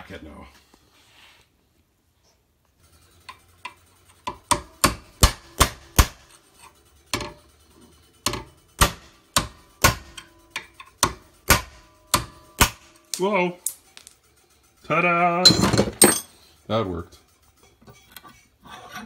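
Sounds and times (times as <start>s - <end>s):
hammer striking steel punch: 4.3s - 6.3s, 8.3s - 13.2s.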